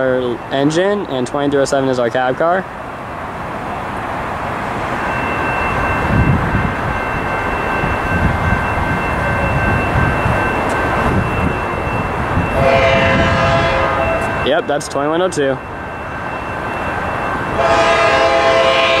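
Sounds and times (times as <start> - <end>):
locomotive engine and rail rumble: 0.0 - 19.0
locomotive horn: 12.6 - 14.4, 17.5 - 19.0.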